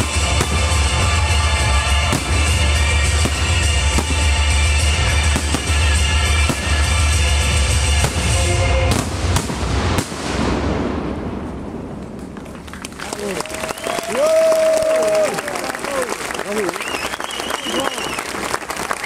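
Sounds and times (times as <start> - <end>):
fireworks bursts banging: 0.0 - 13.0.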